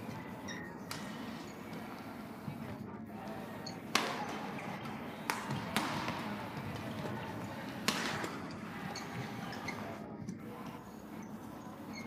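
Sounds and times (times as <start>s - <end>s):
rackets hitting a shuttlecock: 0.8s - 2.1s, 3.2s - 9.9s.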